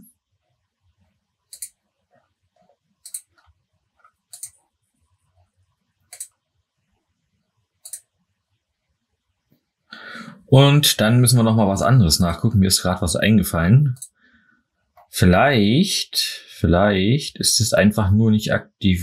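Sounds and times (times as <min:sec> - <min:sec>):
computer mouse clicking: 0:01.5 - 0:01.8, 0:03.0 - 0:04.6, 0:06.1 - 0:06.4, 0:07.8 - 0:08.1.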